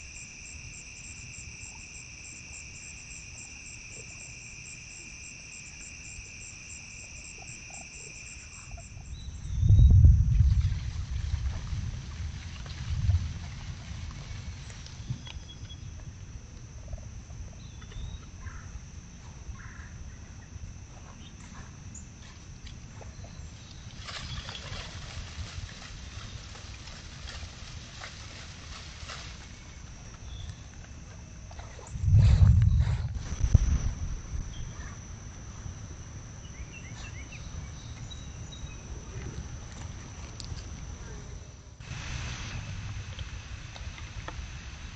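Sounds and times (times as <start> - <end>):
cricket-like insect trill: 0.0 - 42.8
low rumble: 9.0 - 17.1, 23.0 - 44.9.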